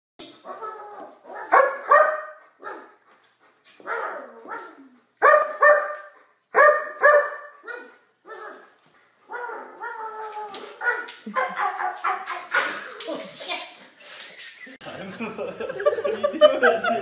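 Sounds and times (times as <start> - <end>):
dog barking: 1.3 - 3.0, 3.8 - 8.6, 10.8 - 12.8.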